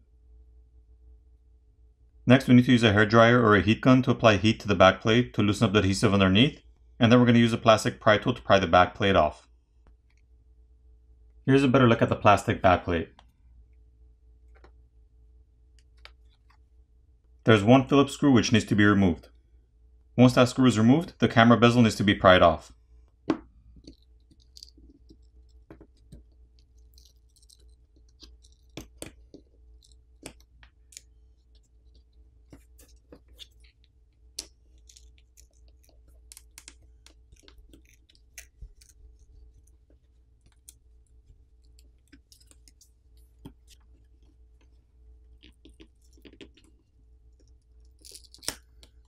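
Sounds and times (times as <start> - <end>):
low steady hum: 0.0 - 49.0
plastic pick clicking and scraping: 32.0 - 39.0.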